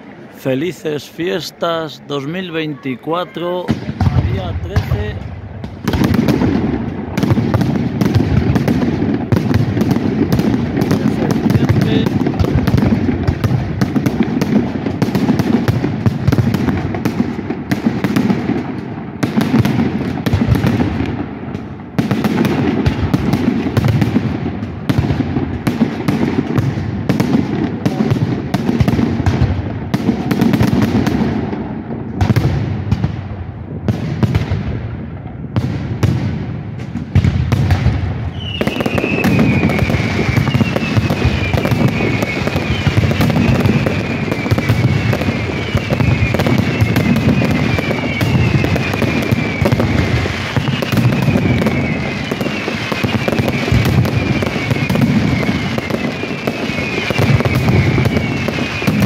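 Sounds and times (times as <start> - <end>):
fireworks bangs and crackling: 0.0 - 59.0
firework whistle falling in pitch: 38.3 - 59.0.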